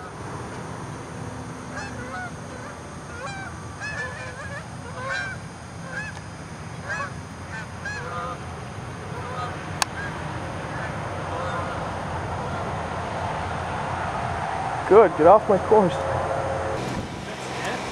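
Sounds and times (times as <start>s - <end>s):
geese honking in flight: 1.7s - 6.2s, 6.8s - 17.9s
steady low rumble: 10.1s - 17.9s.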